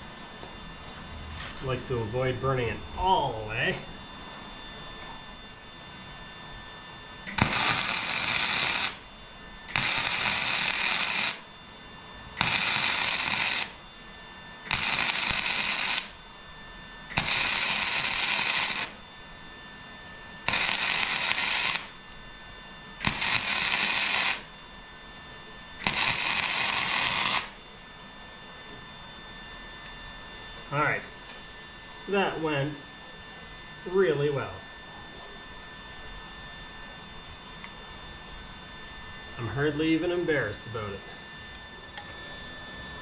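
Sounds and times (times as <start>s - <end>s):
welder arc crackling: 7.3s - 11.6s, 12.2s - 19.4s, 20.4s - 24.7s, 25.8s - 27.6s.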